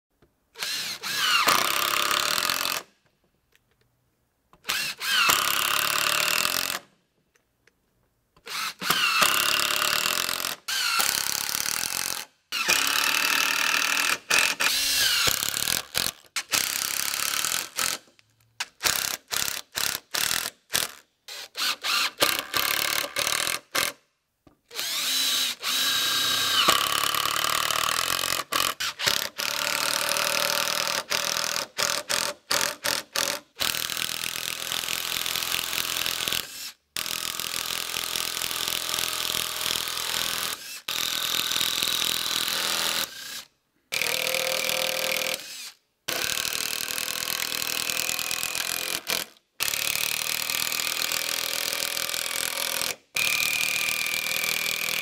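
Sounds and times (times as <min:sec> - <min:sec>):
drill trigger short bursts: 0:00.6 - 0:02.8, 0:08.5 - 0:11.5, 0:12.6 - 0:15.8, 0:21.3 - 0:24.0, 0:24.7 - 0:27.8
power drill driving screws into timber: 0:00.6 - 0:02.9, 0:04.6 - 0:06.9, 0:08.4 - 0:24.0, 0:24.7 - 0:55.0.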